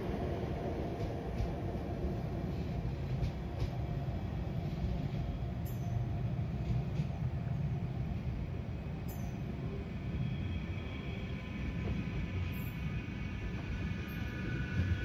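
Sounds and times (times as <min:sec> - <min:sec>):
tram rumbling: 0:00.0 - 0:15.0.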